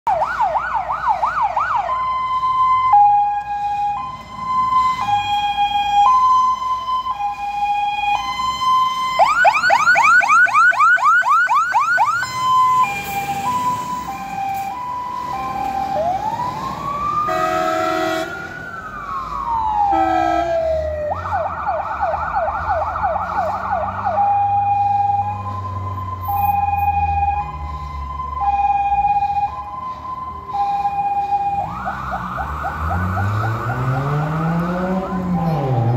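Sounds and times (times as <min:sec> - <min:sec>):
siren wailing: 0:00.1 - 0:35.9
siren yelping: 0:00.1 - 0:35.9
truck engine rumble: 0:00.1 - 0:35.9
two-tone siren: 0:00.1 - 0:35.9
truck horn: 0:17.3 - 0:18.5, 0:19.9 - 0:20.8.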